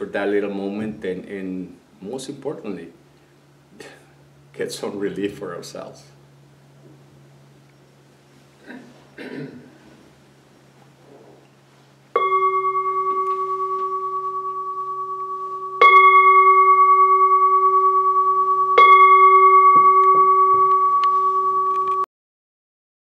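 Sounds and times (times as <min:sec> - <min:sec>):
singing bowl struck and ringing: 0:12.1 - 0:22.1.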